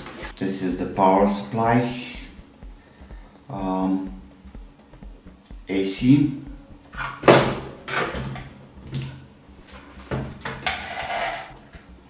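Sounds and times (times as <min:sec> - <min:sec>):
metal plate knocking and scraping: 0:10.0 - 0:11.6.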